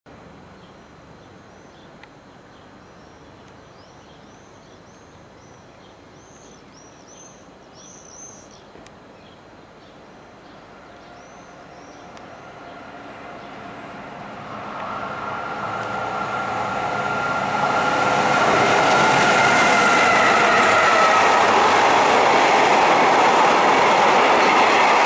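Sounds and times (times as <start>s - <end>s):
outdoor background noise: 0.1s - 25.0s
bird chirping: 0.6s - 13.9s
locomotive diesel engine hum: 11.6s - 25.0s.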